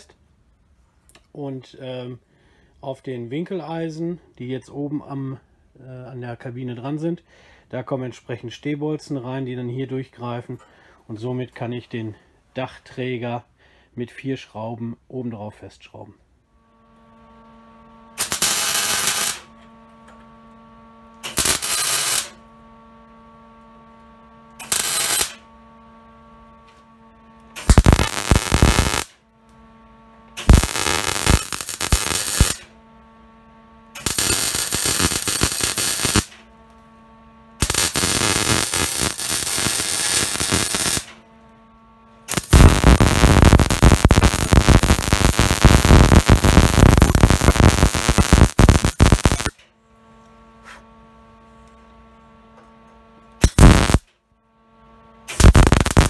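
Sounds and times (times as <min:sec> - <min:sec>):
steady electrical hum: 0:00.0 - 0:56.0
welding arc crackling: 0:18.2 - 0:19.5, 0:21.2 - 0:22.4, 0:24.6 - 0:25.4, 0:27.6 - 0:29.2, 0:30.4 - 0:32.7, 0:34.0 - 0:36.4, 0:37.6 - 0:41.2, 0:42.3 - 0:49.6, 0:53.4 - 0:54.1, 0:55.3 - 0:56.0.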